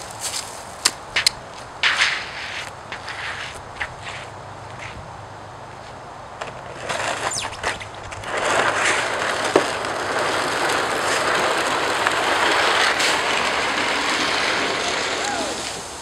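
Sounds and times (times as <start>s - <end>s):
plastic sled scraping on ice: 1.8s - 5.0s, 6.4s - 16.0s
crackles and knocks: 6.4s - 15.2s.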